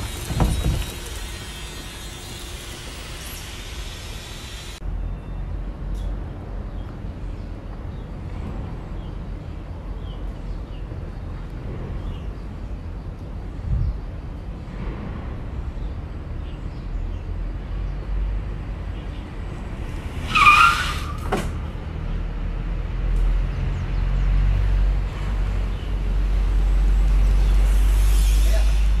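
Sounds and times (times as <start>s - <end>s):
tyres rumbling on pavement: 0.0s - 3.9s, 17.9s - 27.0s
tyre squeal: 20.1s - 21.7s.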